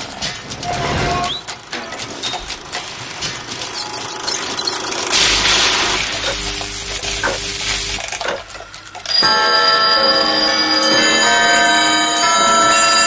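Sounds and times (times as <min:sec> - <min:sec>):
clockwork clicks: 0:00.0 - 0:13.0
bell chime ringing: 0:09.0 - 0:13.0.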